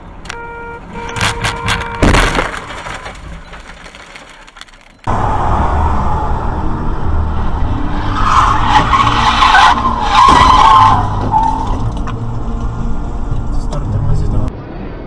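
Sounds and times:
car tyres screeching: 0.0s - 6.7s, 7.4s - 13.0s
car rumbling on road: 0.0s - 14.7s.

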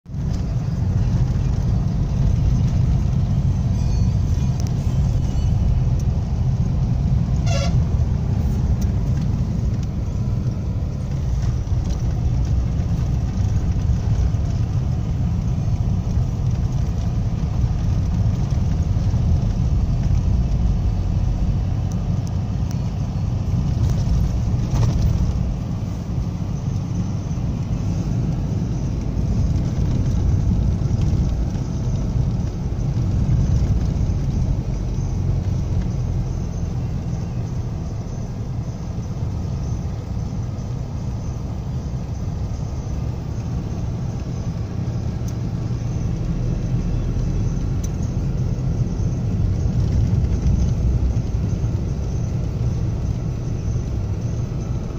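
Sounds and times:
road and wind noise: 0.0s - 54.9s
vehicle engine rumble: 0.0s - 54.9s
horn toot: 7.4s - 7.9s.

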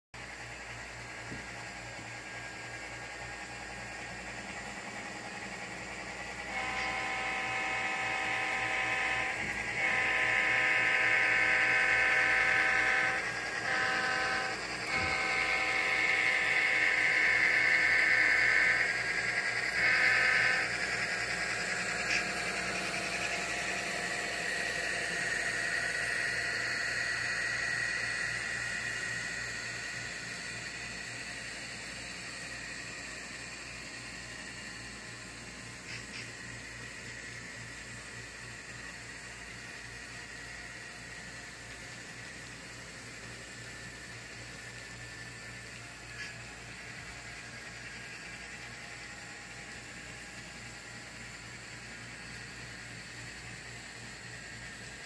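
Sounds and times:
whir of motors and wheels: 0.2s - 55.0s
model train horn blasts: 6.4s - 26.2s.

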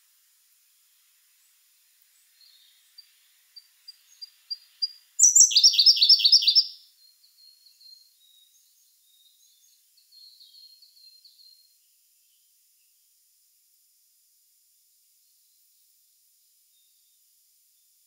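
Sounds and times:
bird singing with rapid trill: 3.9s - 11.8s.

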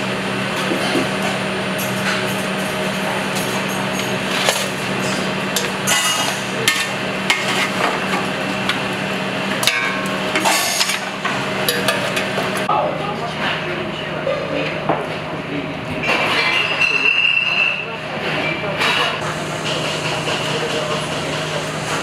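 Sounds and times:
utensils and pans clattering: 0.6s - 8.8s, 9.6s - 12.6s, 16.0s - 22.0s.

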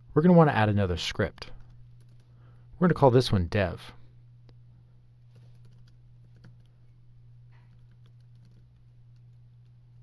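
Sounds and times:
keyboard typing: 5.3s - 6.8s, 7.7s - 9.8s.

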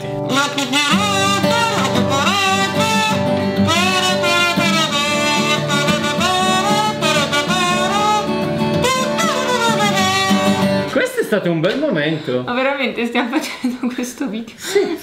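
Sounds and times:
kazoo melody: 0.0s - 10.9s
acoustic guitar strumming: 0.0s - 11.3s.

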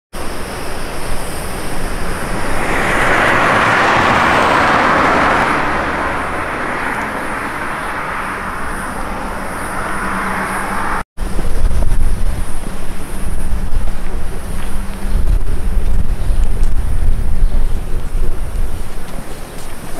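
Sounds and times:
car driving past: 0.5s - 11.0s.

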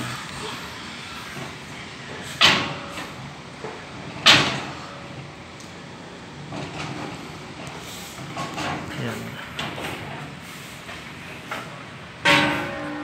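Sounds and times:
metal cylinders clanking: 6.4s - 13.0s.

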